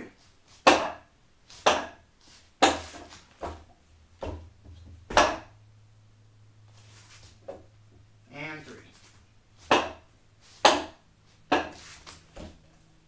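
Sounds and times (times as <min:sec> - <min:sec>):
sharp wooden knocks: 0:00.6 - 0:02.0, 0:02.6 - 0:05.5, 0:09.7 - 0:10.0, 0:10.6 - 0:11.8.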